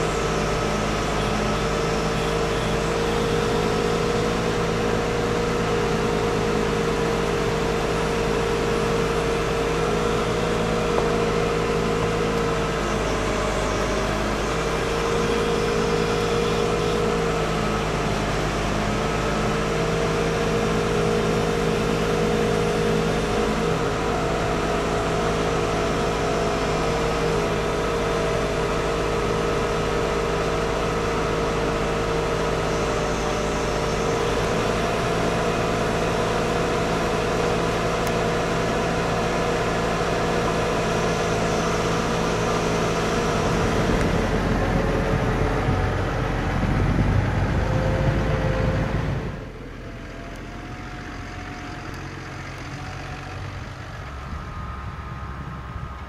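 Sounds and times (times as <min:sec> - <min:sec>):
tractor engine running under load: 0:00.0 - 0:56.0
wind on microphone: 0:43.3 - 0:49.4.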